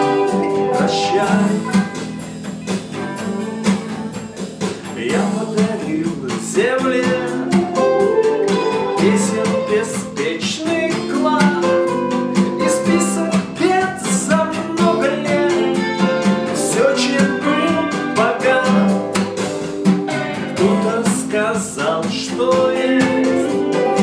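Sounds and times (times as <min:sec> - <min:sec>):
backing track through speaker: 0:00.0 - 0:11.8
man singing: 0:00.0 - 0:19.4, 0:20.1 - 0:24.0
acoustic guitar strumming: 0:00.0 - 0:24.0.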